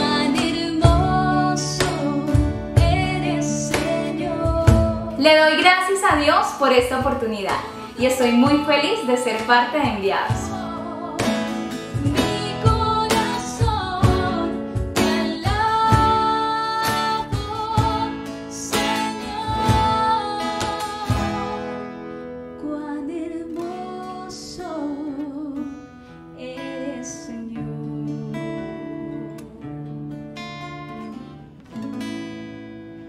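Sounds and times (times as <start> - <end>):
hand drum beating: 0.0 - 5.2, 9.8 - 18.1
woman singing: 0.0 - 30.2
strummed acoustic guitars: 0.0 - 33.0.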